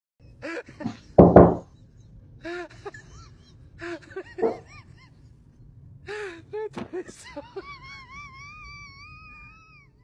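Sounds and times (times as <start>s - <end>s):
loud double knock: 1.2s - 1.6s.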